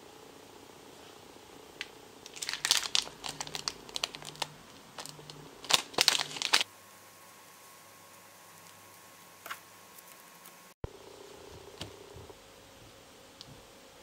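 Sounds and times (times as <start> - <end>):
plastic packets crinkling: 2.2 - 6.7.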